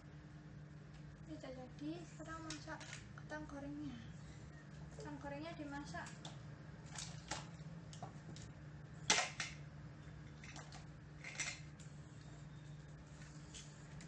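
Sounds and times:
low steady hum: 0:00.0 - 0:14.0
plastic toys clicking and knocking: 0:09.1 - 0:09.6.

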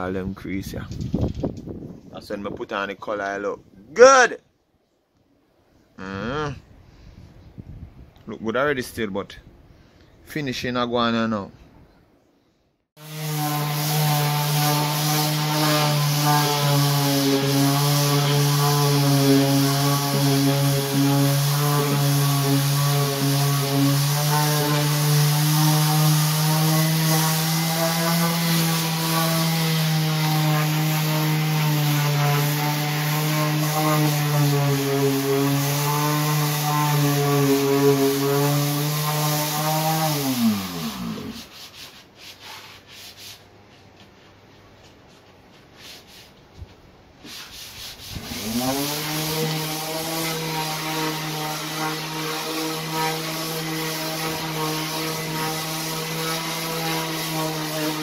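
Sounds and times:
electric sander on wood: 0:13.0 - 0:41.5, 0:48.0 - 0:58.0.

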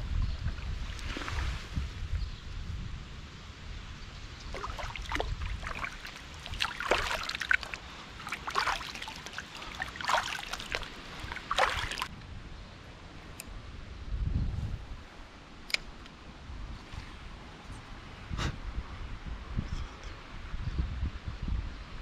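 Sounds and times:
water splashing: 0:04.5 - 0:12.1.

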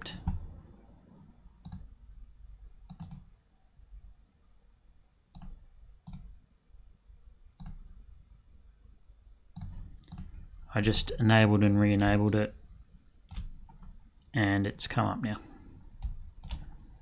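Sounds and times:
computer mouse clicks: 0:01.6 - 0:01.9, 0:02.8 - 0:03.3, 0:05.3 - 0:06.3, 0:07.6 - 0:07.9, 0:09.5 - 0:10.4, 0:13.3 - 0:14.0, 0:16.0 - 0:16.9.

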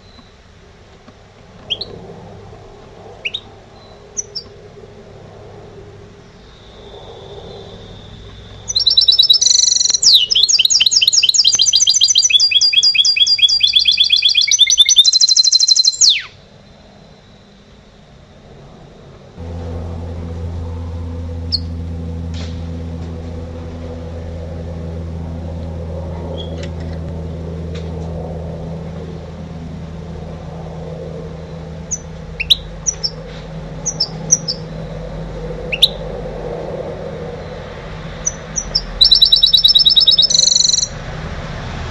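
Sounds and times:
steady low hum: 0:00.0 - 0:10.3, 0:16.7 - 0:41.9
bird trilling song: 0:01.7 - 0:01.9, 0:08.4 - 0:16.3, 0:31.5 - 0:34.8, 0:35.7 - 0:36.0, 0:38.2 - 0:41.0
short bird chirps: 0:38.6 - 0:40.9.

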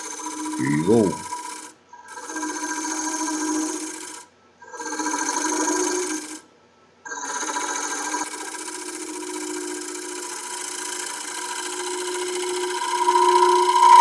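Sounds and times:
gouge cutting wood on a lathe: 0:00.0 - 0:04.2, 0:04.8 - 0:06.4, 0:07.2 - 0:13.1
steady ringing tone: 0:11.3 - 0:14.0.

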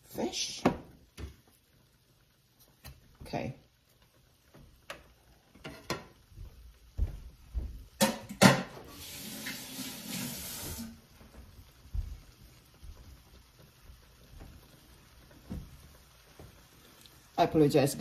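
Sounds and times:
water tap running: 0:08.8 - 0:11.1.

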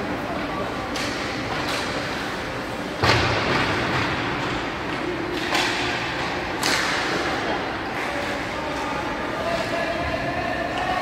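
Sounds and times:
arena noise: 0:00.0 - 0:11.0
thud against rink boards: 0:03.0 - 0:07.3.

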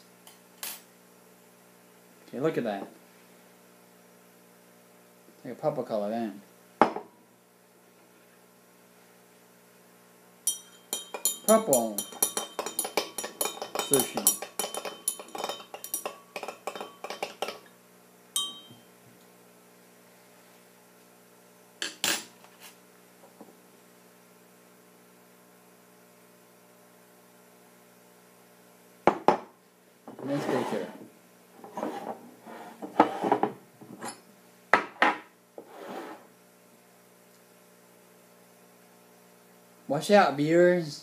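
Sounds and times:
faint steady hum: 0:00.0 - 0:41.0
stirring rod clinking glass: 0:10.5 - 0:17.7, 0:18.4 - 0:18.9
glass knocks and scrapes: 0:31.6 - 0:34.2.

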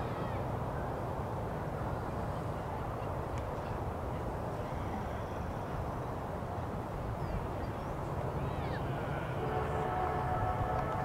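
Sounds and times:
low outdoor rumble: 0:00.0 - 0:11.0
faint high warble: 0:07.6 - 0:11.0.

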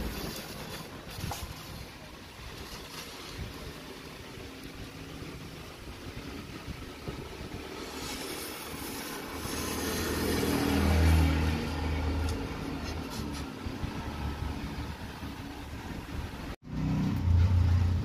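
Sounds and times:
vehicle engine passing by: 0:07.6 - 0:18.0.

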